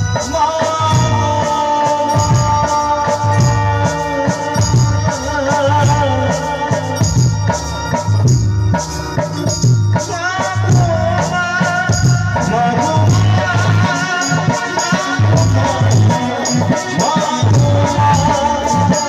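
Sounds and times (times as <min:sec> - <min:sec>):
man singing: 0:00.0 - 0:08.1, 0:09.9 - 0:19.0
jingling percussion: 0:00.0 - 0:19.0.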